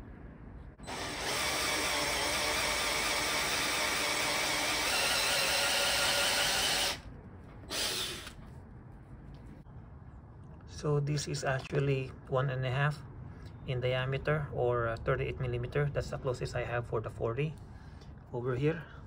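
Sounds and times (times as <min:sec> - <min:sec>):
cordless drill with hole saw cutting: 0:00.8 - 0:07.0, 0:07.7 - 0:08.4.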